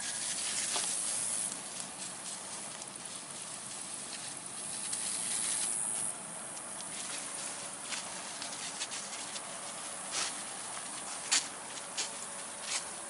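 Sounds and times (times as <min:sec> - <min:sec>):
garden sprayer hissing: 0:00.0 - 0:13.0.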